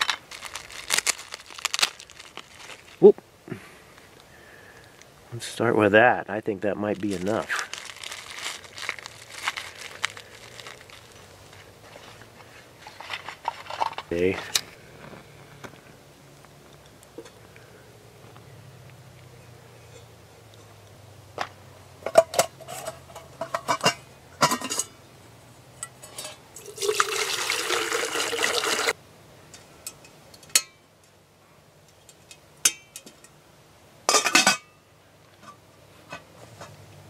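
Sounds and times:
water pouring into metal pot: 26.6s - 29.0s.

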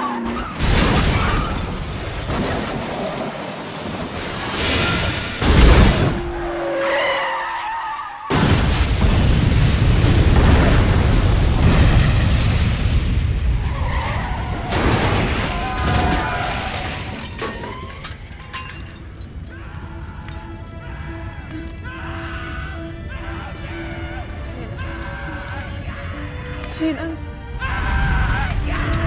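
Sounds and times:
crash with shattering and scraping: 0.4s - 6.4s, 8.3s - 20.5s
car crash impact: 0.5s - 6.4s, 14.4s - 19.3s.

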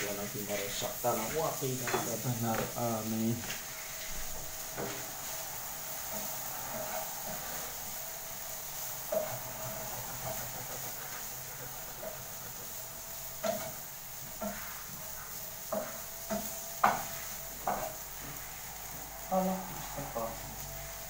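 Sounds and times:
steady hiss: 0.0s - 21.0s.

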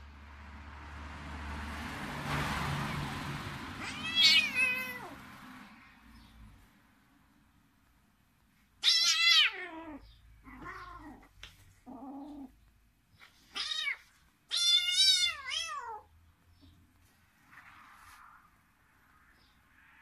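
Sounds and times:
kitten meowing: 3.8s - 5.2s, 8.8s - 11.3s, 13.5s - 16.1s.

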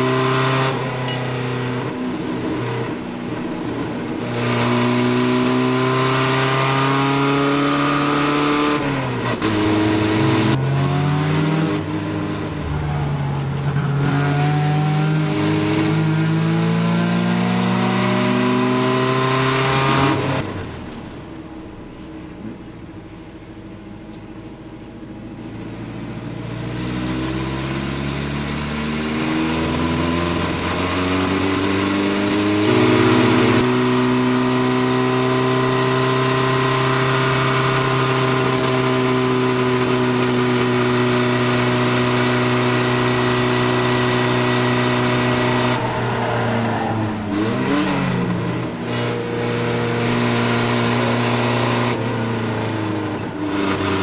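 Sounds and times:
truck engine revving: 0.0s - 20.6s, 26.6s - 54.0s
road and wind noise: 0.0s - 54.0s.

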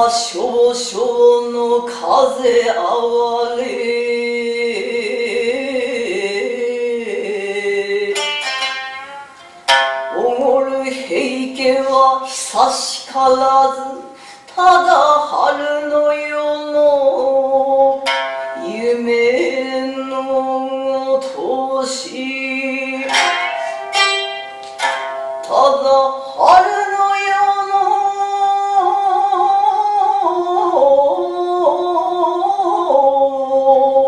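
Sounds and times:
plucked lute strikes: 8.1s - 12.5s, 17.8s - 20.6s, 22.1s - 28.0s.

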